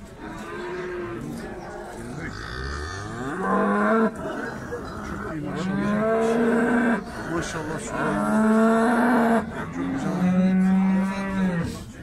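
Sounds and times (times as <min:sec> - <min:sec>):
cow mooing: 0:05.4 - 0:11.8.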